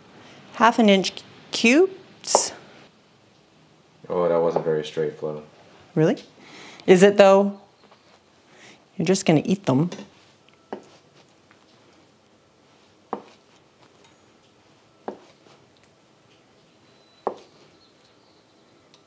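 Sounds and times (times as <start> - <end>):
knife knocking on wooden board: 17.2 - 17.5.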